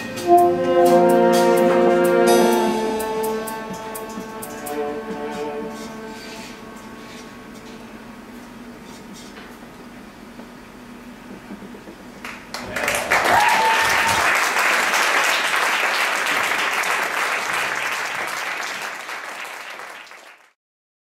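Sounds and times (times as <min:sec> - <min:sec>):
audience applauding: 0:12.2 - 0:20.6
audience cheering: 0:12.5 - 0:20.1.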